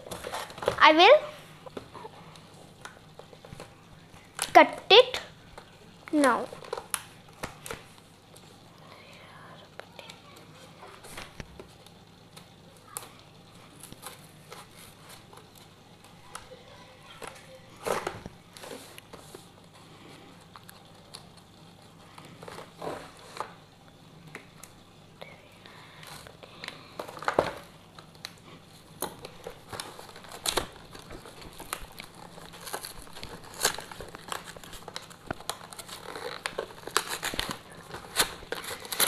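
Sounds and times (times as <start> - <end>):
cardboard crinkling and tearing: 29.0 - 39.0.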